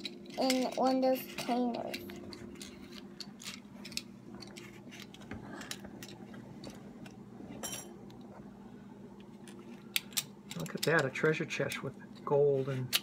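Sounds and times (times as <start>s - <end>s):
plastic toy pieces clicking: 0.0s - 6.2s, 9.9s - 11.8s
faint steady hum: 0.0s - 13.0s.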